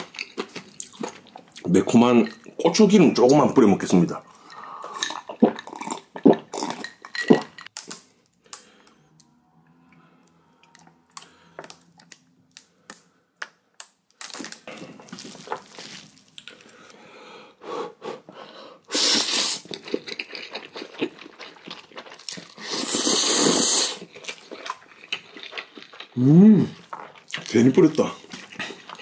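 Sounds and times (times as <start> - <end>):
wet chewing: 4.3 - 8.6, 14.2 - 17.0, 19.5 - 29.0
noodle slurps: 22.4 - 24.1.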